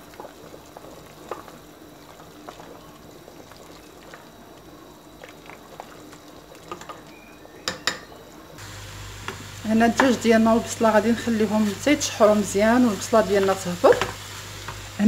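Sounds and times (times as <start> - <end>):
soup bubbling in a pot: 0.0 - 15.0
spoon tapping against pot: 7.6 - 8.1.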